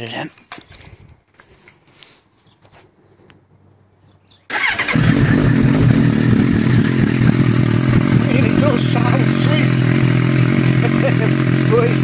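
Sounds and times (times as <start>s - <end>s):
motorcycle engine idling: 4.5s - 12.0s.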